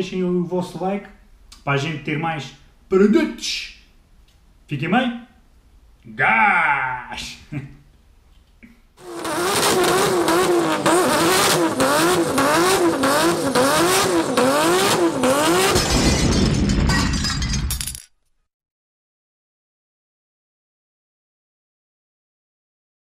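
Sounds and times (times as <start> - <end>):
car engine and road noise: 9.0 - 16.4.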